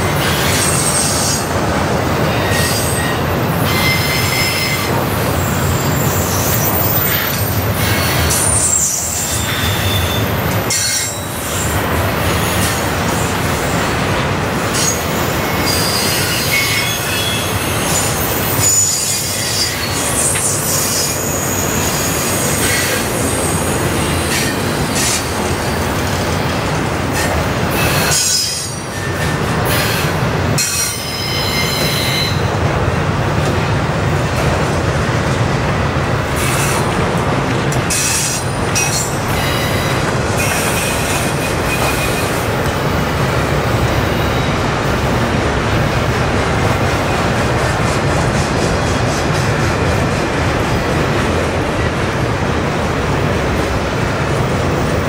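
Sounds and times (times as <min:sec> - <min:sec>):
train wheels on rail: 0:00.0 - 0:55.0
high-pitched wheel squeal: 0:02.4 - 0:11.3, 0:14.8 - 0:23.6, 0:30.6 - 0:32.5.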